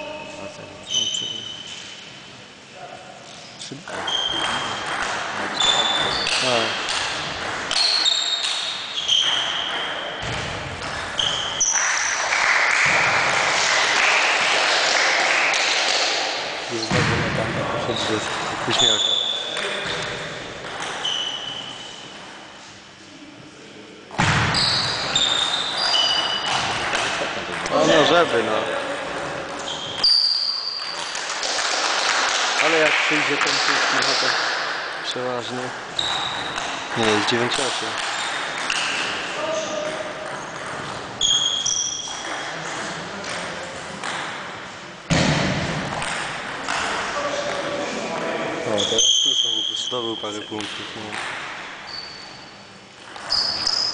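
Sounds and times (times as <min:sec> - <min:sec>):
sneaker squeak on wooden floor: 0:00.0 - 0:02.2, 0:03.9 - 0:06.6, 0:07.7 - 0:11.8, 0:18.7 - 0:19.6, 0:20.8 - 0:22.2, 0:24.5 - 0:26.7, 0:29.5 - 0:31.1, 0:35.9 - 0:36.7, 0:40.5 - 0:42.4, 0:51.8 - 0:53.9
table tennis ball pinging: 0:03.9 - 0:13.4, 0:18.0 - 0:21.6, 0:36.0 - 0:44.5
loud thump: 0:24.2 - 0:24.6, 0:45.1 - 0:45.9.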